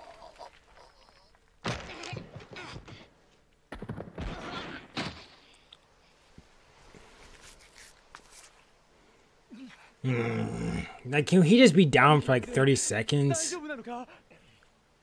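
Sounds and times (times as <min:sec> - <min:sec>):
voice: 0:10.1 - 0:14.2.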